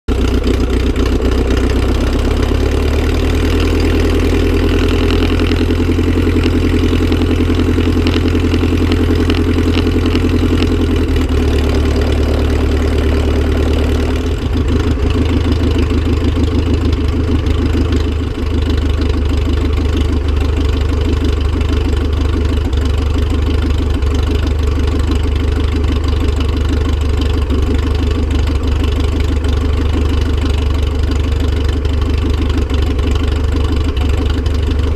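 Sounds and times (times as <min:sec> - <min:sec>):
propeller plane engine running: 0:00.1 - 0:34.9.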